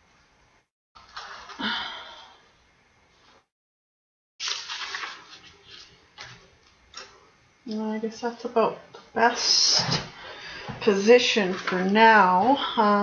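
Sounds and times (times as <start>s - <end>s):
paper rustling and sliding: 1.0s - 1.6s, 4.4s - 6.5s.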